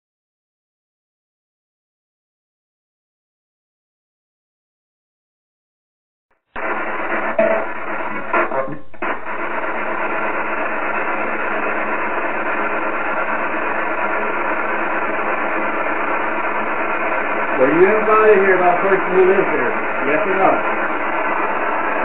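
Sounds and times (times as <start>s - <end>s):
radio static hiss: 6.6s - 22.0s.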